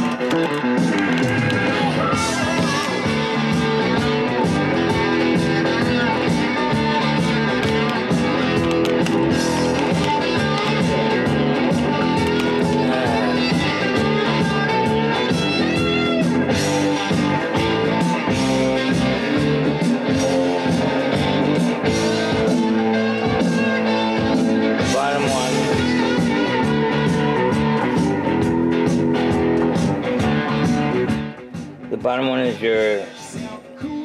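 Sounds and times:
rock music with electric guitar: 0.0s - 34.0s.

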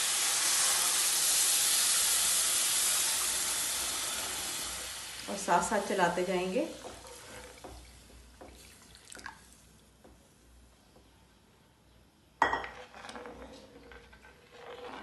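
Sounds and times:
steel spoon scraping a pan: 12.6s - 15.0s.

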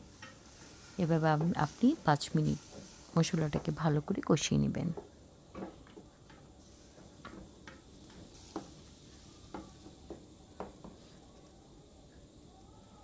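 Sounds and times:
faint sizzle: 0.0s - 13.0s.

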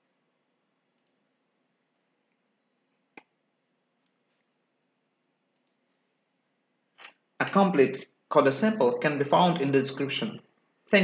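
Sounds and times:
computer mouse click: 0.9s - 1.2s, 5.5s - 5.8s.

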